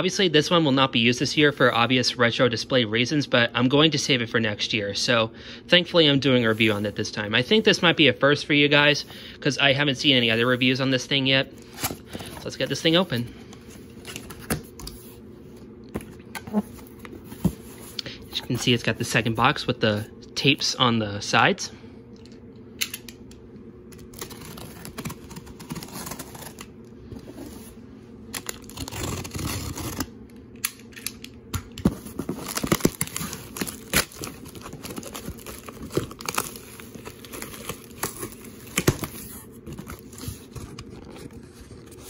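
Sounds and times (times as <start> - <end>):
cardboard scraping and rustling: 16.0 - 19.0, 24.2 - 27.8, 31.8 - 42.0
packing tape tearing: 23.9 - 26.7, 28.3 - 42.0.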